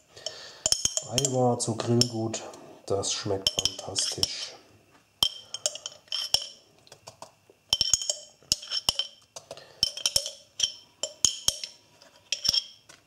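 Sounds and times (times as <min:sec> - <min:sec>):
glass jar clinking: 0:00.6 - 0:01.4, 0:03.4 - 0:04.4, 0:05.2 - 0:06.6, 0:07.7 - 0:09.2, 0:09.8 - 0:12.8.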